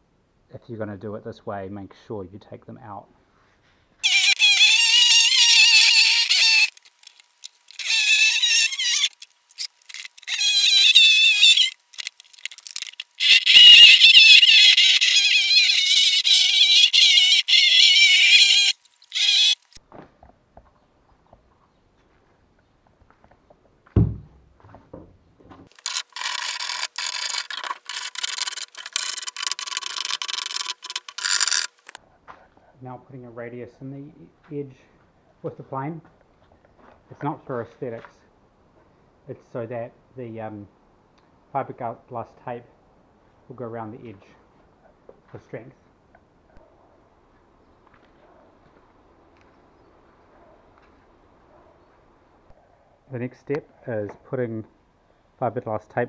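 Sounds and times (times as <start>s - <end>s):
power tool whining: 4.0s - 19.8s, 25.7s - 32.0s
thump: 23.9s - 25.6s.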